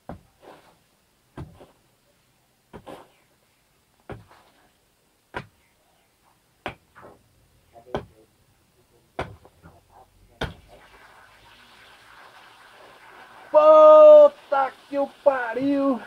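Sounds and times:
hoe chopping into hard soil: 1.4 - 1.8
water spraying hiss: 10.4 - 16.0.

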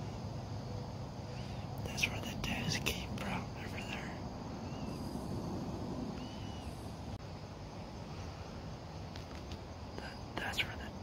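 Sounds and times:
faint bird chirps: 1.2 - 7.2, 10.0 - 11.0
low rumble on microphone: 1.8 - 8.4.

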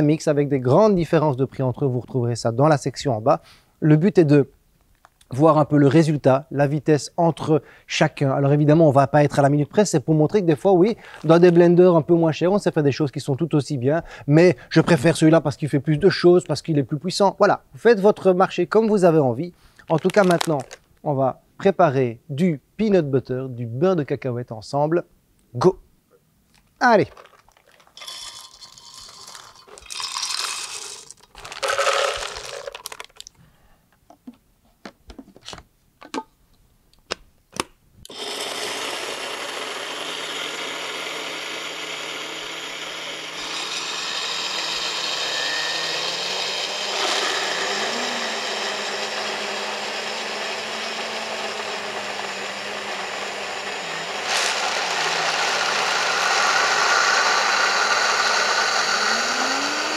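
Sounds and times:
peanuts poured into jars: 19.9 - 20.8, 26.9 - 33.4
blender grinding: 20.0 - 20.8, 27.1 - 33.2, 38.1 - 59.9.

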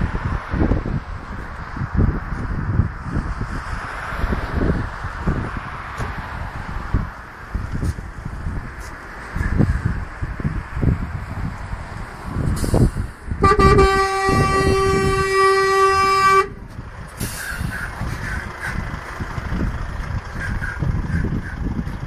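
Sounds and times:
truck engine rumble: 0.0 - 22.0
truck horn blast: 13.4 - 16.6.

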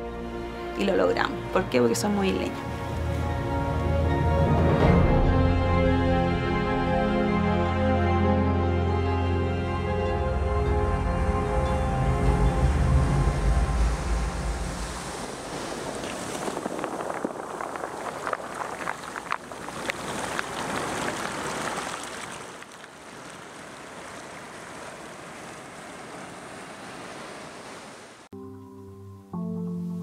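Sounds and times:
sharp wave splashes: 12.4 - 28.3
surf washing onto stony shore: 12.6 - 28.3.

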